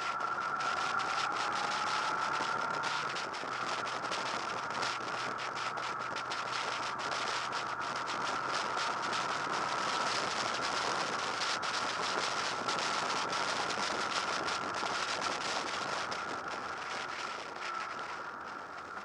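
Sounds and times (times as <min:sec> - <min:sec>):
constant high whine: 0:00.0 - 0:19.0
motorcycle wind and road roar: 0:00.0 - 0:19.0
wind buffeting crackle: 0:00.0 - 0:19.0.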